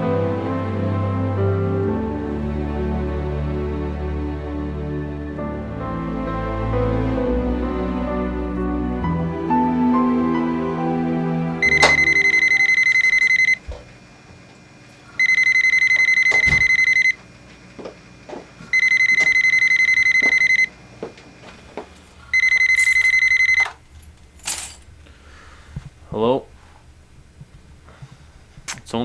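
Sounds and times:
telephone ringing with electronic trill: 11.6 - 13.6, 15.2 - 17.2, 18.7 - 20.7, 22.3 - 23.8
footsteps: 17.4 - 19.4, 20.2 - 22.3.

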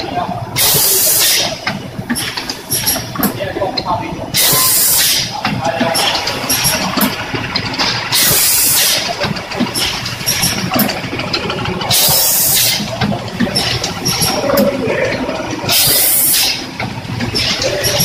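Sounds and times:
pneumatic air hiss: 0.6 - 1.5, 4.4 - 5.3, 8.2 - 9.0, 11.9 - 12.8, 15.7 - 16.6
machine clicking and knocking: 0.6 - 18.0.

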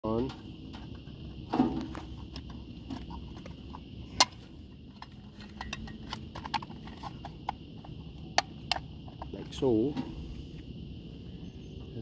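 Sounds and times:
metal box clicks and taps: 5.0 - 7.6.

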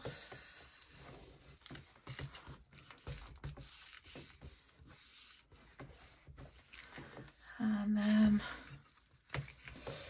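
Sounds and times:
cloth rubbing on paper: 1.0 - 9.7.

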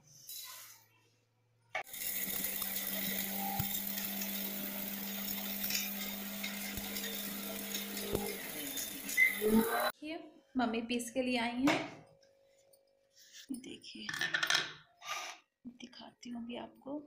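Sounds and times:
mixer grinder motor hum: 1.8 - 9.9
spices rattling in grinder: 1.8 - 9.9.

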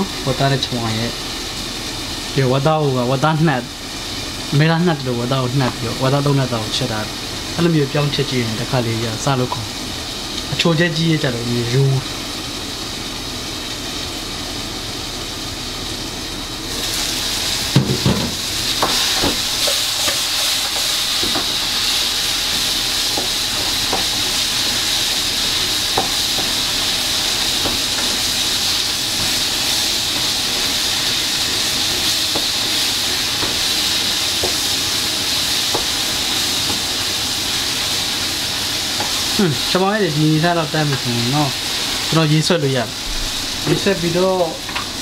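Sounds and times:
curry sizzling in a pot: 0.0 - 45.0.

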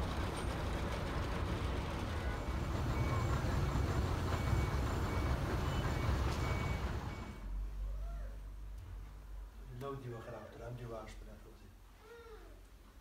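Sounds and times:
heavy vehicle engine rumbling: 0.0 - 8.0
street noise: 0.0 - 8.7.

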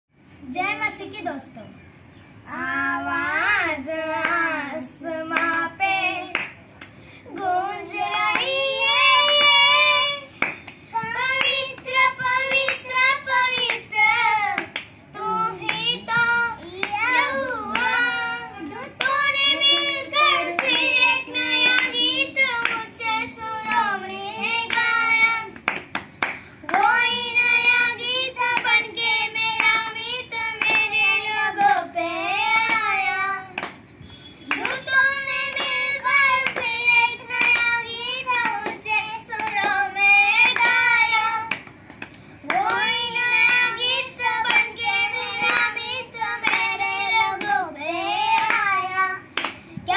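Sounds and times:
hands clapping: 6.3 - 7.0, 8.0 - 8.6, 10.4 - 13.9, 14.6 - 14.9, 15.6 - 22.9, 24.6 - 27.0, 29.6 - 30.0, 30.6 - 31.8, 33.6 - 33.8, 34.5 - 39.8, 40.4 - 47.6, 48.3 - 49.6
boys singing in unison: 7.2 - 25.6, 34.5 - 41.6, 42.5 - 49.9.

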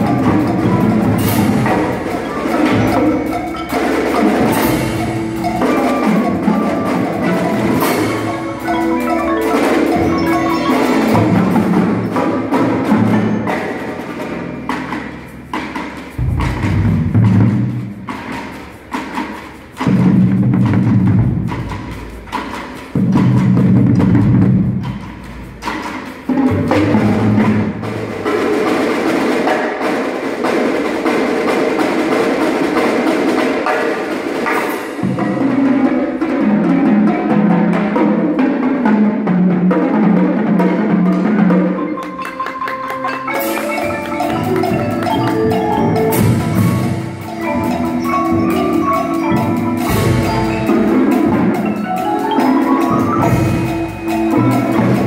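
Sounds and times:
marimbas and xylophones: 0.0 - 38.4, 39.8 - 55.0
snare drums: 0.0 - 55.0
timpani: 0.0 - 55.0
marching bass drums: 14.6 - 28.6.

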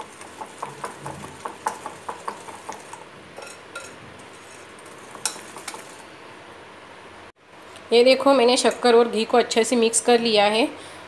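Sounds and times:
whisk clicking against bowl: 0.0 - 6.0.

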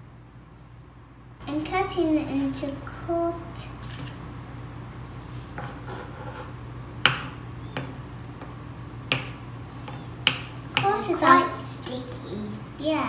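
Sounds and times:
knife knocking on wooden board: 9.1 - 10.9.

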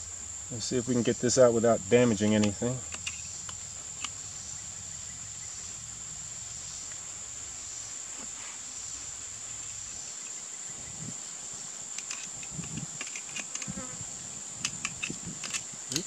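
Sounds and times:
insect chorus: 0.0 - 16.0
light clicks of handled parts: 11.9 - 13.7.

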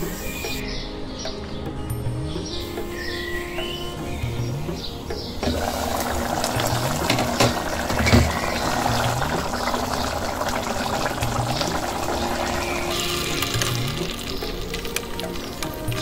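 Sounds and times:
music with rising bass line: 0.0 - 16.0
water pouring into pot: 5.4 - 16.0.

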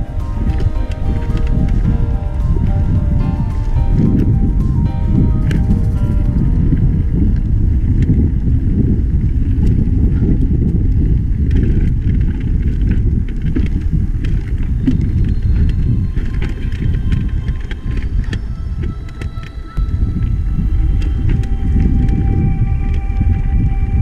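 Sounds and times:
wind buffeting microphone: 0.0 - 24.0
bike clicks and rattles: 9.3 - 19.6.

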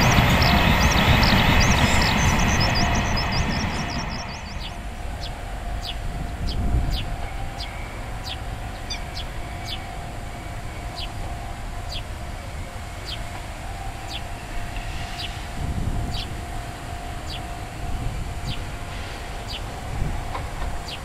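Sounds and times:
bird chirping: 0.0 - 10.0, 10.6 - 11.3, 11.9 - 12.1, 13.0 - 13.3, 14.0 - 16.4, 17.2 - 17.6.

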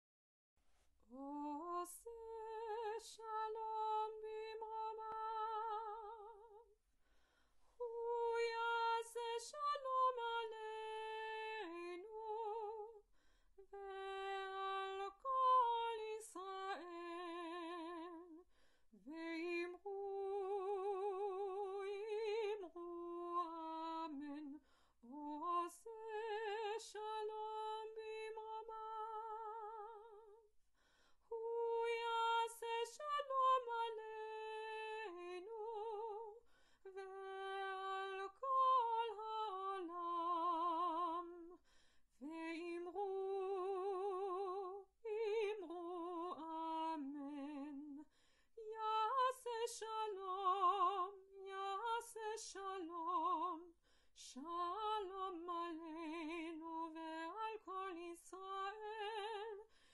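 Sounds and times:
woman singing unaccompanied: 1.1 - 6.7, 7.8 - 13.0, 13.6 - 18.4, 19.0 - 30.5, 31.3 - 41.6, 42.2 - 59.7.

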